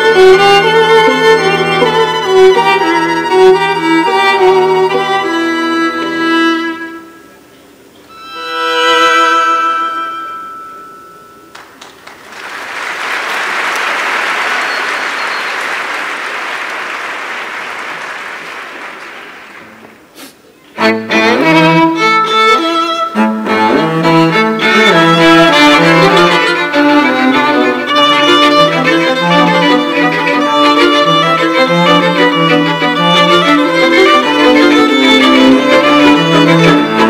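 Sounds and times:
high bowed note: 0.0 - 7.4, 8.0 - 11.8, 20.8 - 37.0
string quartet playing chords: 0.0 - 11.0, 20.7 - 37.0
audience applauding: 11.5 - 19.8.

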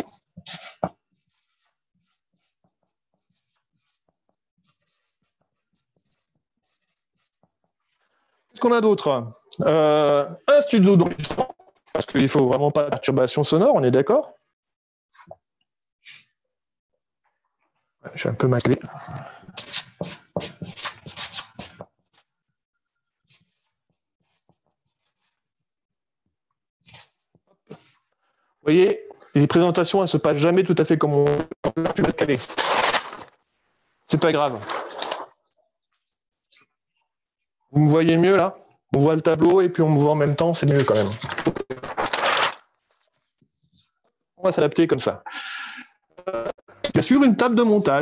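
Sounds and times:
marker scratching on board: 0.0 - 8.0, 19.6 - 22.3, 23.0 - 25.5, 26.8 - 28.0.

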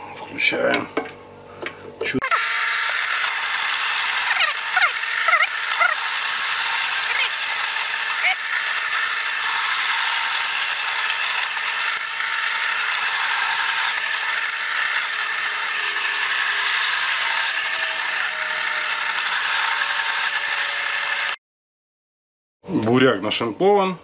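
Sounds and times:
electric vegetable shredder running: 2.2 - 21.4.

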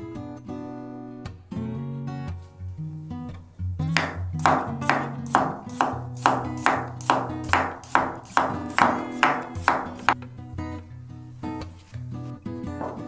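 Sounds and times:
acoustic guitar music: 0.0 - 13.0
knife tapping wooden cutting board: 4.0 - 10.2, 12.8 - 13.0.

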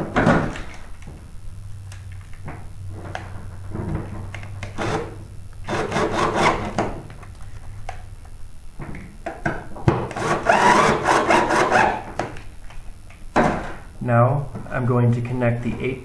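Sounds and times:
cordless drill driving screws: 10.1 - 12.0.

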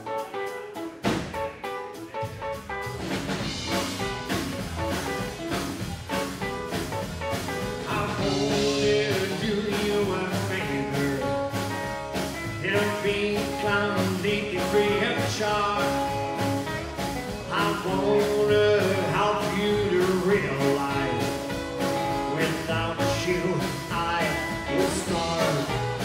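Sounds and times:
drums: 0.0 - 26.0
rockabilly band playing: 0.0 - 26.0
strummed acoustic guitar: 0.2 - 26.0
person singing: 7.6 - 16.7, 17.4 - 26.0.

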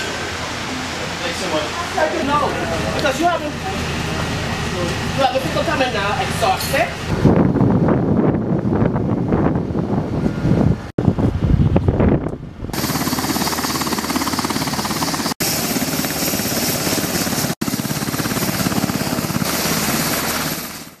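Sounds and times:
helicopter turbine whine and rotor chop: 0.0 - 21.0
gusty low rumble: 2.8 - 15.1.

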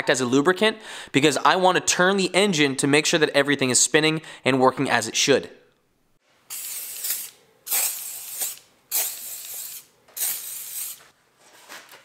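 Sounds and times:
spray can hissing: 6.5 - 11.1.

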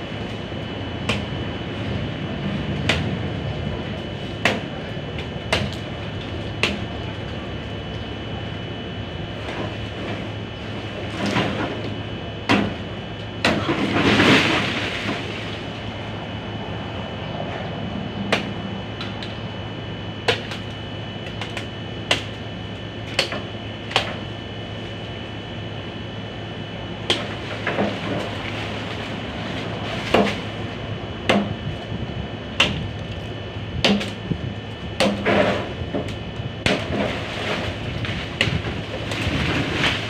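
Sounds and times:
knife chopping tree branch: 4.4 - 4.7, 5.5 - 5.8, 22.1 - 22.3, 23.1 - 24.2, 31.3 - 31.6, 32.6 - 32.8, 33.8 - 34.2, 35.0 - 35.6, 36.6 - 37.0.

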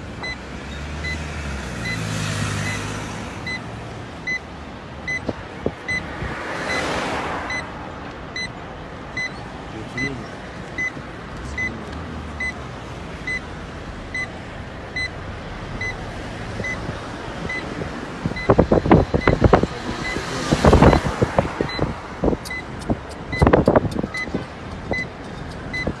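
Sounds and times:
road noise: 0.0 - 26.0
car warning chime beeping: 0.2 - 2.0, 2.6 - 6.9, 7.5 - 10.2, 10.8 - 11.8, 12.4 - 12.6, 13.2 - 26.0.

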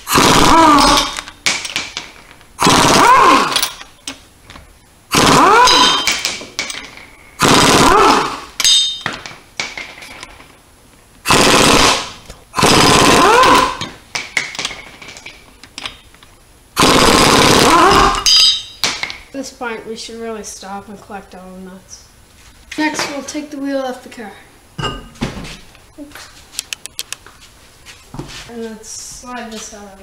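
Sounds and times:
pneumatic impact wrench hammering: 0.0 - 3.9, 5.1 - 9.8, 11.2 - 14.8, 16.8 - 19.2.

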